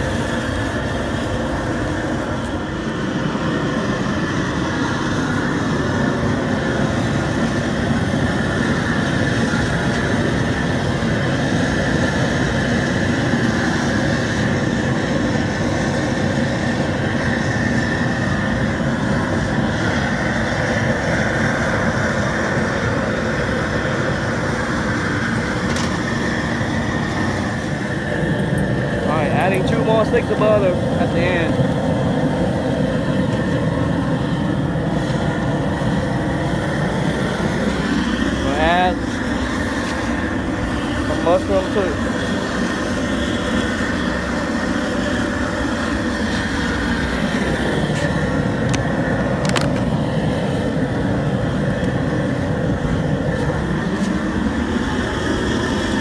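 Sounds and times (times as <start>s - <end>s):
gas burner roaring: 0.0s - 56.0s.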